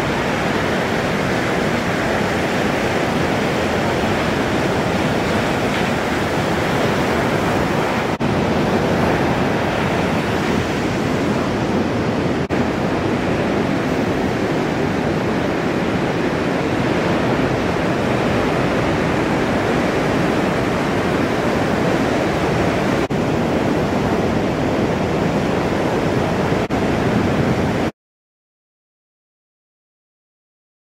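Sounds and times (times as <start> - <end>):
ocean waves breaking: 0.0 - 27.9.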